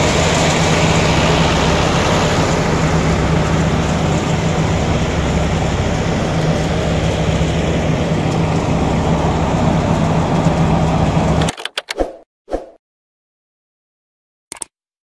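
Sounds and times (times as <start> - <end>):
engine droning: 0.0 - 11.5
short clicks: 11.4 - 12.2, 14.5 - 14.7
brief swish: 11.9 - 12.8.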